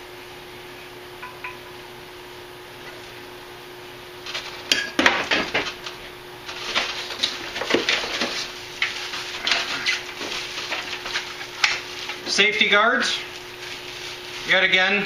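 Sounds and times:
packaging rustling: 4.2 - 4.8, 5.6 - 12.4, 13.3 - 14.7.

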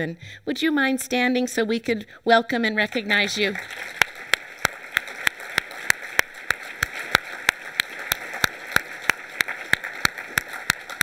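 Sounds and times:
audience applauding: 2.9 - 11.0
close sharp hand claps: 3.6 - 11.0.

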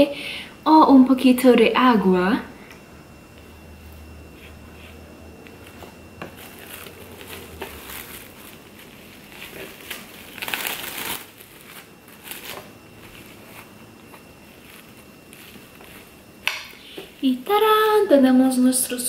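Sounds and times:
cling film crinkling: 5.5 - 18.1.

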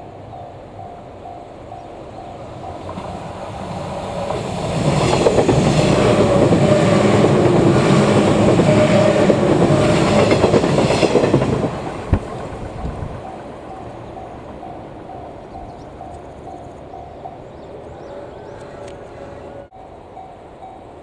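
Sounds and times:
train wheels clattering on rails: 2.3 - 17.3.

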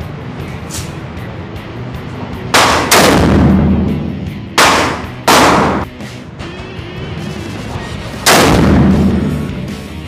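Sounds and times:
background music: 0.0 - 10.0
rifle shots with echo: 2.6 - 3.9, 4.6 - 5.9, 8.3 - 9.4.

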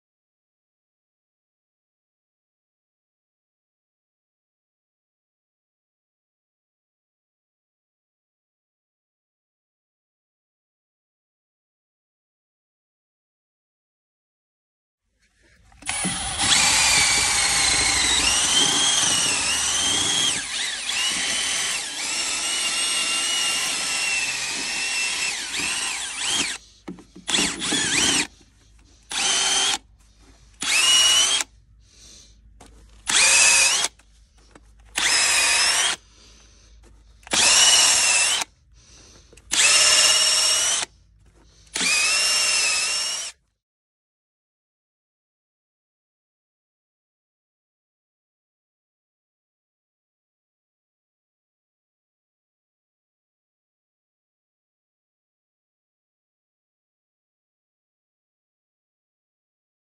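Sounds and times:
cordless drill motor whine: 15.6 - 31.6, 32.7 - 36.3, 36.9 - 43.4.

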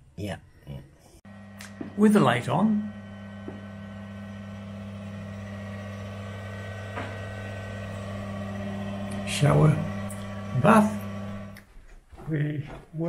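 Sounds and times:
extractor fan humming: 1.3 - 11.6.

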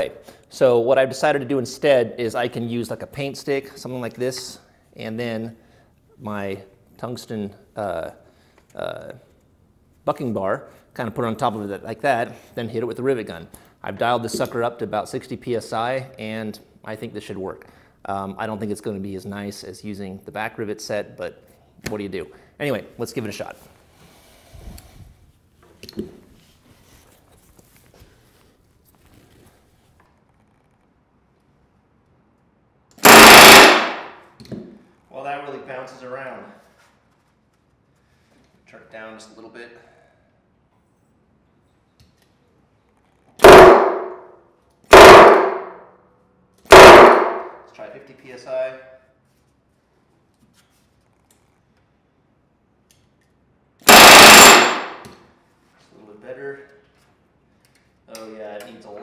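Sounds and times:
rivet gun rapid hammering: 33.0 - 34.2, 43.4 - 44.2, 44.9 - 45.8, 46.7 - 47.6, 53.9 - 55.1.

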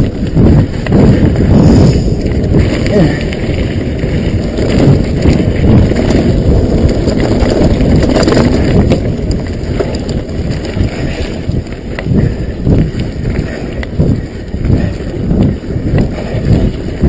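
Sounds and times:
tyre rumble: 0.0 - 17.0
wind buffeting microphone: 0.0 - 17.0
bike rattling knocks: 2.2 - 14.9.

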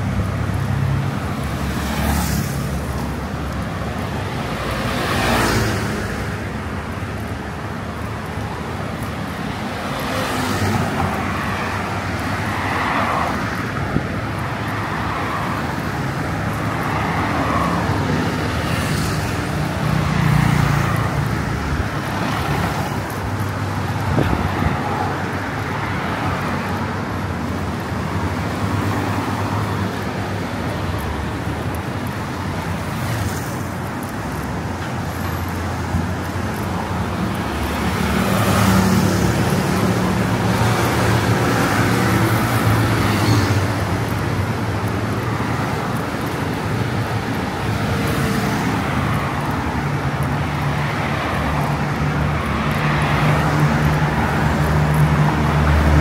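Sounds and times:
tyres on road: 0.0 - 56.0.

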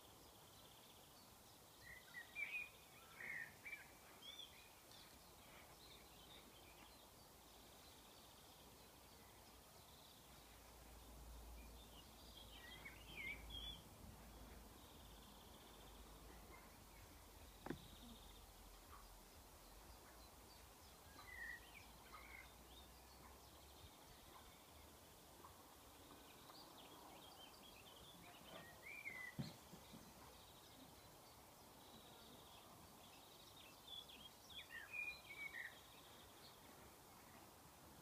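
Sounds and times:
background hiss: 0.0 - 38.0
faint birds chirping: 0.0 - 38.0
soft tap: 17.6 - 17.9.

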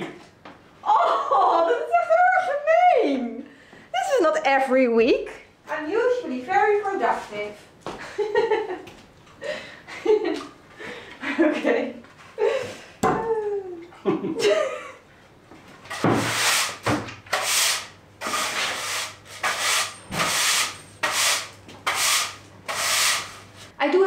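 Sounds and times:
broom sweeping grit on concrete: 17.4 - 23.7.

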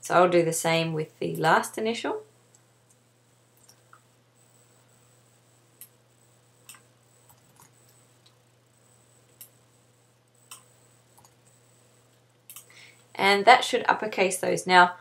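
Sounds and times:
low steady hum: 0.0 - 15.0
mouse and keyboard clicks: 12.5 - 12.7.

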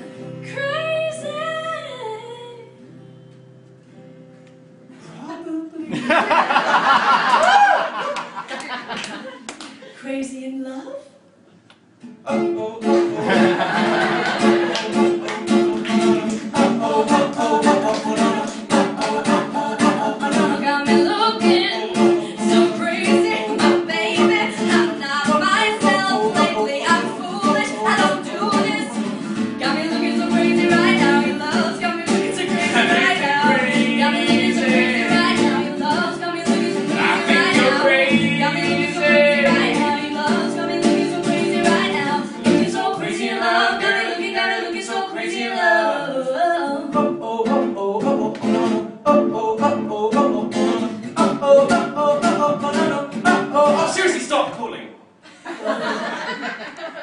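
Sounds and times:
woman singing pop song: 0.4 - 2.7, 17.1 - 47.1
strummed acoustic guitar: 12.0 - 44.4, 46.9 - 54.2.

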